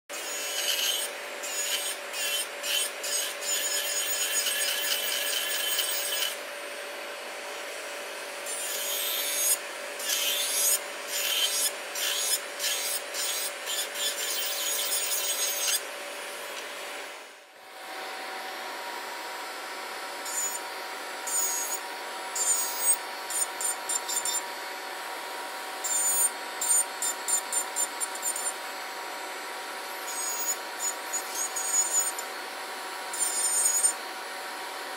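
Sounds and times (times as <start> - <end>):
nail drill grinding nail: 0.1 - 6.4, 8.4 - 15.8, 20.3 - 20.6, 21.2 - 24.4, 25.8 - 28.6, 30.1 - 32.3, 33.1 - 34.0
drill motor whine: 0.1 - 6.6, 19.5 - 24.6, 25.5 - 34.8
dust collector fan: 0.1 - 34.9.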